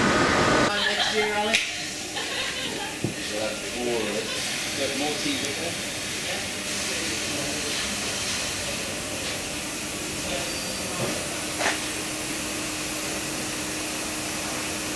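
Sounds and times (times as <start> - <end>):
steady hissing noise: 0.0 - 14.9.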